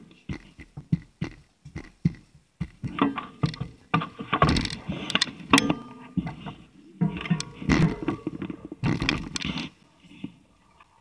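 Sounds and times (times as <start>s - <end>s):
train carriage rattling: 0.0s - 4.9s.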